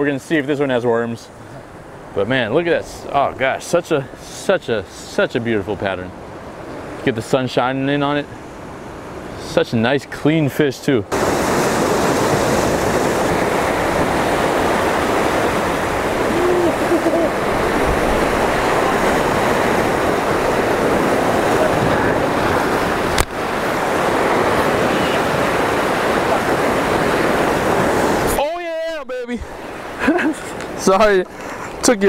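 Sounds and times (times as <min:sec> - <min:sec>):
ocean surf washing over rocks: 0:11.1 - 0:32.0.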